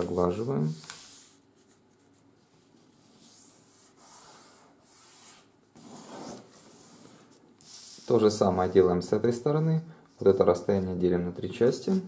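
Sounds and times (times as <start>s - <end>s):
soft paper swishes: 0.0s - 8.5s.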